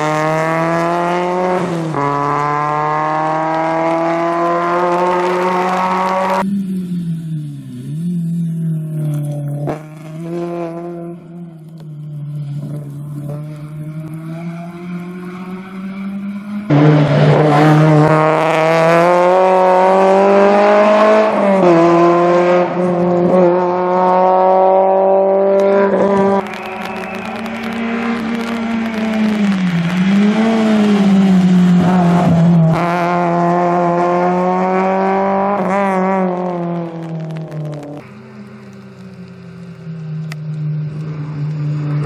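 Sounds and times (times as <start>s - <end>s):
rally car engine at high revs: 0.0s - 39.5s, 40.2s - 42.0s.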